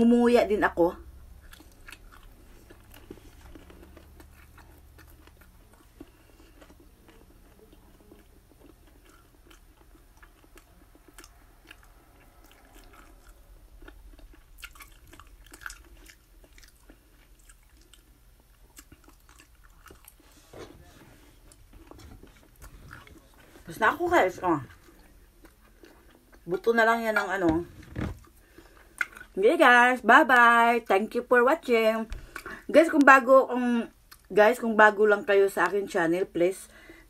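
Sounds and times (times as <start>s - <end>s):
person chewing food: 1.4s - 20.5s, 21.1s - 23.7s, 24.7s - 26.5s, 27.8s - 29.4s.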